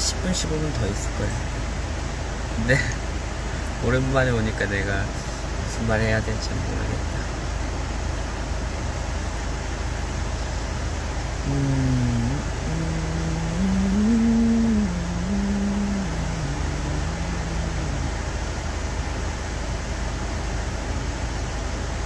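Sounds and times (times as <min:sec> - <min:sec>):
car interior rumble: 0:00.0 - 0:22.0
man humming: 0:11.4 - 0:18.2.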